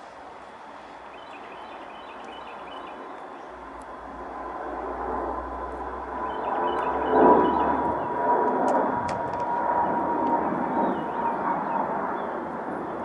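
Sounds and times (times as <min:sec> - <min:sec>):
birds chirping: 0:00.5 - 0:03.8, 0:06.1 - 0:08.3, 0:10.6 - 0:13.0.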